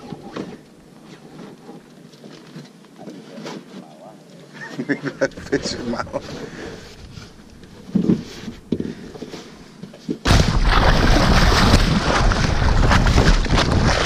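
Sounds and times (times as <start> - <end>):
boat hull cutting through water: 10.4 - 14.0.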